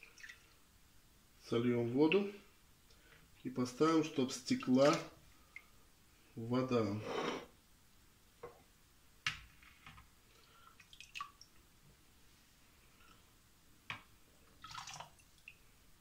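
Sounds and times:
water dripping into a bowl: 0:00.0 - 0:00.6, 0:04.5 - 0:05.8, 0:10.4 - 0:11.7, 0:14.6 - 0:15.7
water trickling: 0:00.0 - 0:00.7, 0:10.3 - 0:11.7, 0:14.4 - 0:15.8.

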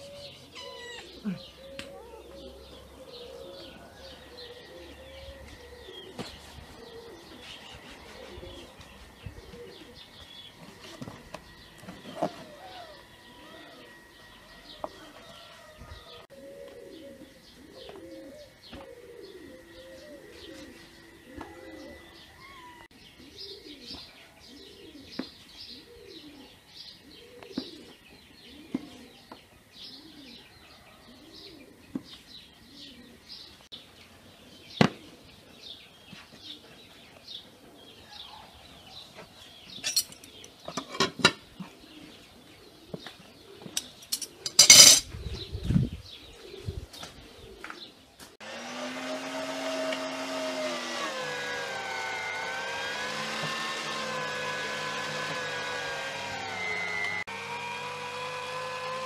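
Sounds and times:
cooing calls: 0:00.0 - 0:31.9, 0:32.6 - 0:33.6, 0:39.9 - 0:48.1
small birds chirping: 0:00.0 - 0:48.3.

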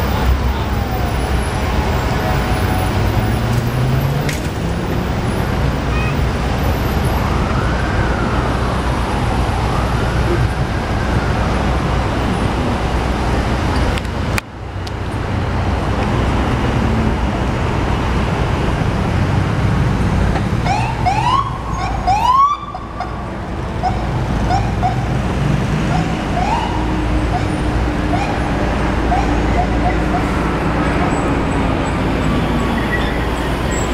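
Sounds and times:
city traffic rumble: 0:00.0 - 0:33.9
fire engine electronic siren: 0:06.4 - 0:12.4, 0:20.6 - 0:30.4.

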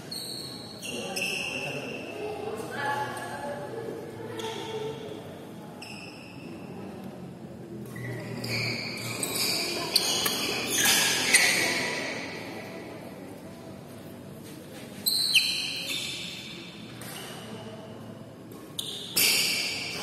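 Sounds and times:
shoes squeaking on court floor: 0:00.0 - 0:02.7, 0:04.3 - 0:05.0, 0:07.8 - 0:12.4, 0:14.4 - 0:17.6, 0:18.5 - 0:20.0.

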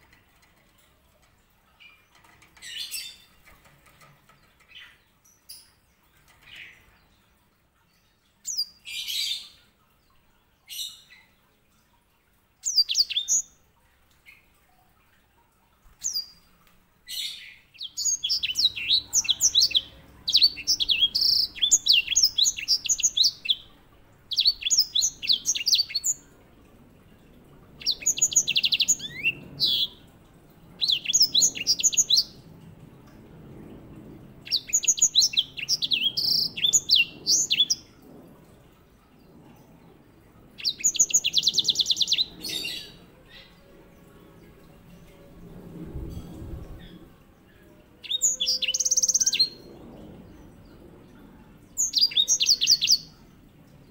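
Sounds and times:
finch singing: 0:17.1 - 0:23.7, 0:24.3 - 0:26.3, 0:27.8 - 0:30.1, 0:30.8 - 0:32.4, 0:48.0 - 0:49.6.

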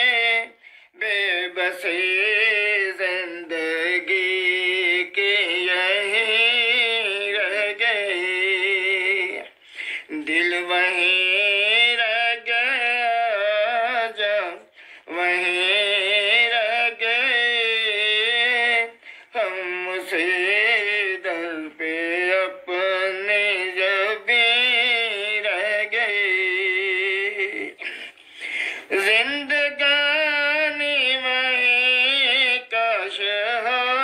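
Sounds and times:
person singing unaccompanied: 0:00.0 - 0:34.0.

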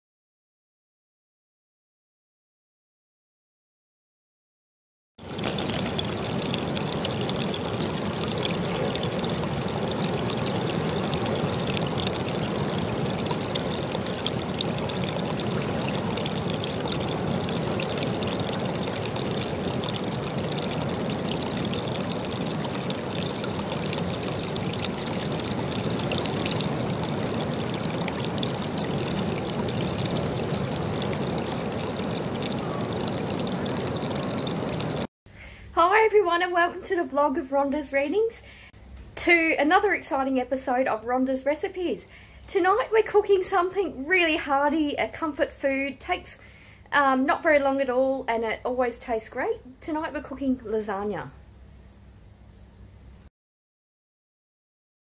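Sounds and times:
water trickling into a pool: 0:05.2 - 0:35.1, 0:52.4 - 0:52.8.

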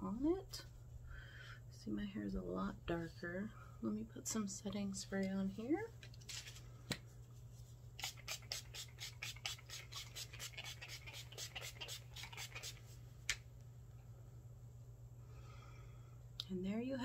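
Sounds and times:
spray bottle hissing sprays: 0:08.0 - 0:12.8.

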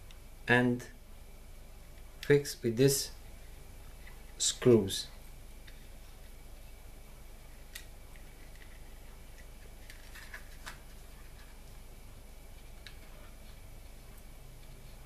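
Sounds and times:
faint steady hum and hiss: 0:00.0 - 0:15.0.

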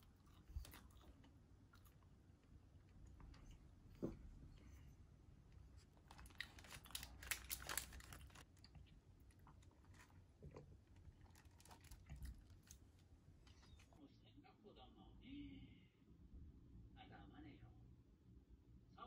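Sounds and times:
quiet chewing: 0:00.0 - 0:14.0
paper wrapper crinkling: 0:06.0 - 0:08.7, 0:10.9 - 0:12.9.

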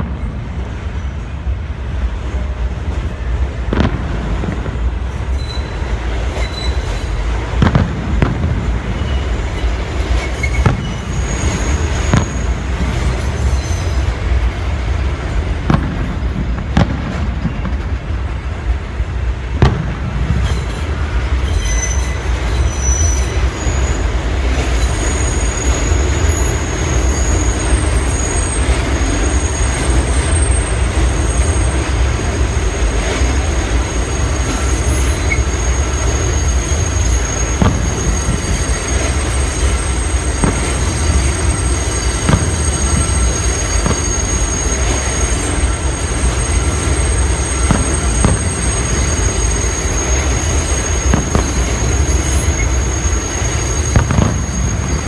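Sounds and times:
subway train rumble: 0:00.0 - 0:55.0
distant fireworks bangs: 0:03.7 - 0:05.5, 0:07.4 - 0:13.6, 0:15.1 - 0:18.3, 0:19.5 - 0:21.1, 0:36.0 - 0:55.0
train wheels squealing: 0:05.1 - 0:07.5, 0:08.2 - 0:14.4, 0:20.4 - 0:55.0.

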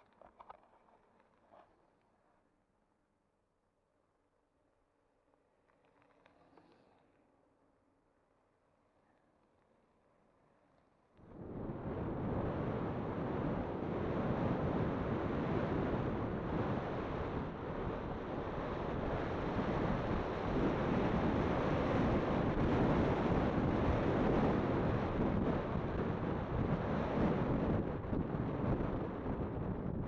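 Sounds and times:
wind buffeting microphone: 0:11.3 - 0:30.0.

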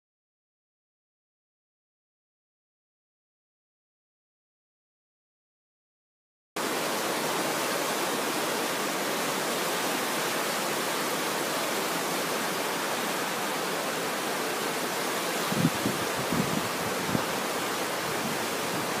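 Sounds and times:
floodwater rushing: 0:06.6 - 0:19.0.

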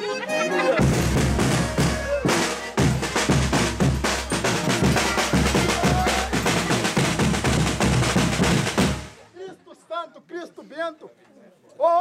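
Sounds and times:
fast snare and bass drumming: 0:00.8 - 0:09.1.

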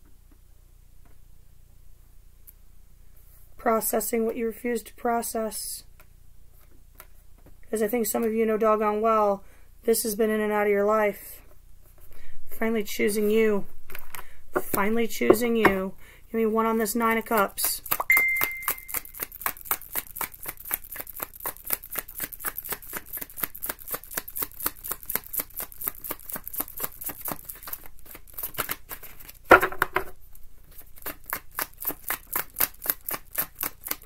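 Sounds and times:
cards being shuffled: 0:13.0 - 0:15.8, 0:16.8 - 0:34.0
short high beep: 0:18.1 - 0:19.1.

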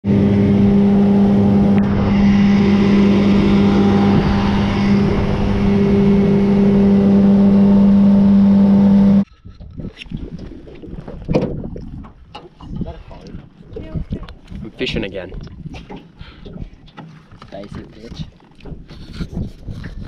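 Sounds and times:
outboard motor running: 0:00.0 - 0:09.3.

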